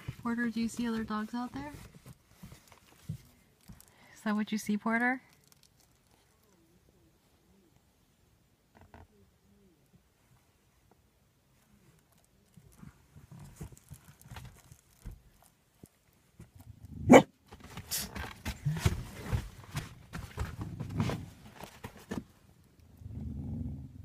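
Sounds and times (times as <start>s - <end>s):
dog grumbling and woofing: 16.9s - 17.3s
dog barking sharply: 17.1s - 17.3s.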